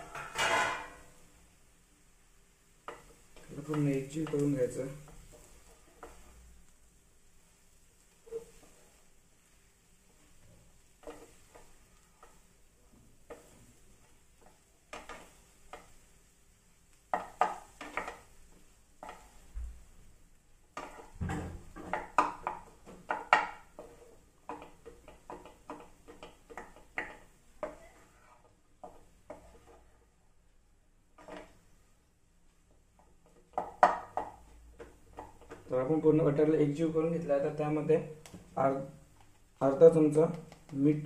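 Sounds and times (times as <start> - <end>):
spoon scraping a cooking pan: 2.8 - 6.6, 7.4 - 16.2, 17.0 - 19.5, 20.7 - 30.0, 31.1 - 31.7.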